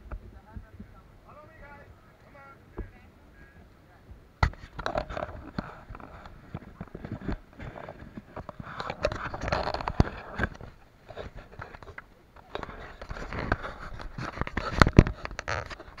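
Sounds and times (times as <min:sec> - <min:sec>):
camera handling knocks and rubbing: 0:04.4 - 0:16.0.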